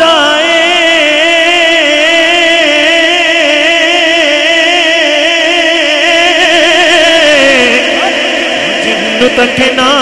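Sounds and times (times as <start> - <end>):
man singing over loudspeaker: 0.0 - 10.0.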